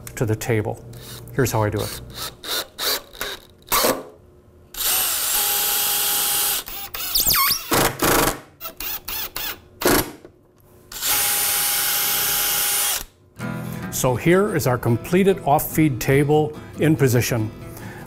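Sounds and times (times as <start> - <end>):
cordless drill driving screws: 4.8 - 9.6, 10.9 - 13.1.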